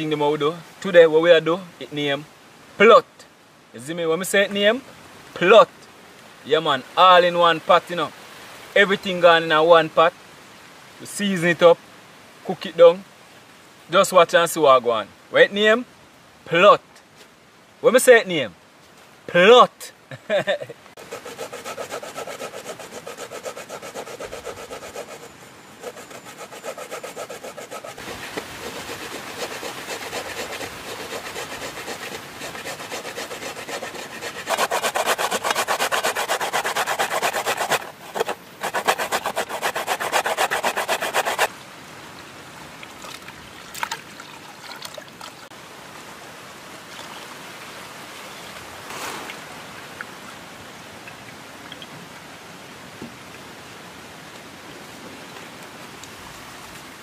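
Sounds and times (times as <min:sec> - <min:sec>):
steady hiss: 0:00.0 - 0:43.7
coconut grated on metal grater: 0:21.0 - 0:41.5.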